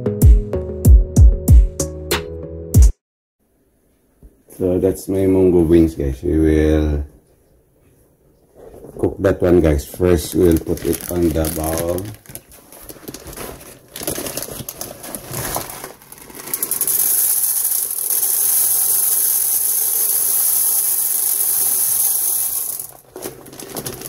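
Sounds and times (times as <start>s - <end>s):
plastic bag crinkling: 8.6s - 24.0s
dried beans pouring into metal pot: 10.2s - 12.2s, 15.1s - 24.0s.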